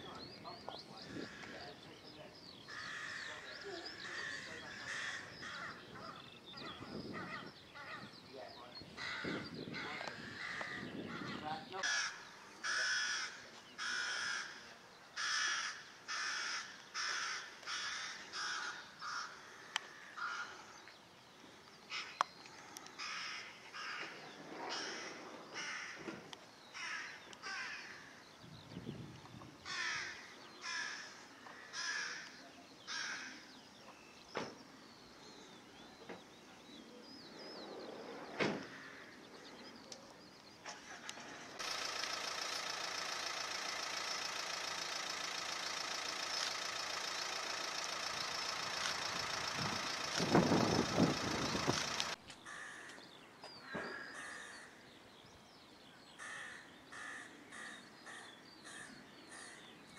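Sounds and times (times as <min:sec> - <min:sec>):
bird calling: 0:00.0 - 0:59.9
sharp clicks: 0:39.8 - 0:53.0.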